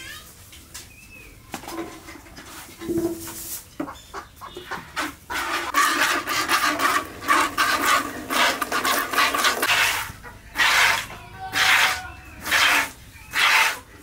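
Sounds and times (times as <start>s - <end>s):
milk squirting into plastic bucket: 5.7s - 10.1s.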